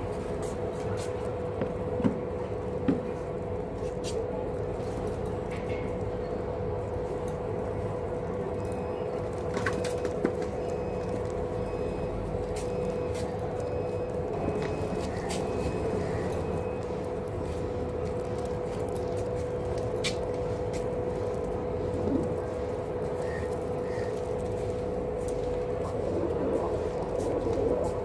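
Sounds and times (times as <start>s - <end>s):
mechanical hum and rumble: 0.0s - 28.0s
pigeons pecking on concrete: 7.2s - 28.0s.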